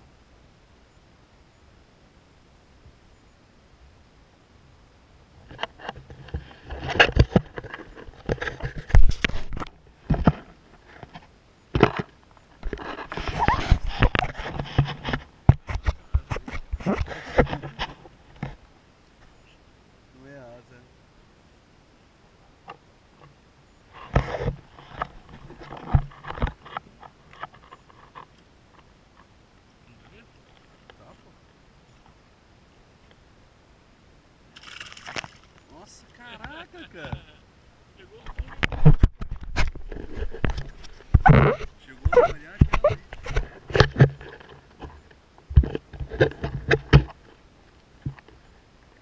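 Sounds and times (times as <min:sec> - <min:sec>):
knocks and rustling on kayak: 0:05.4 - 0:18.6, 0:24.0 - 0:29.3, 0:38.2 - 0:47.3.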